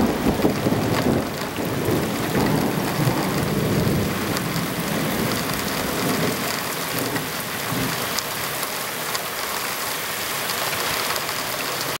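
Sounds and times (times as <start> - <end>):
thunder rumble: 0.0 - 8.2
heavy rain: 0.0 - 12.0
raindrops ticking on surfaces: 0.0 - 12.0.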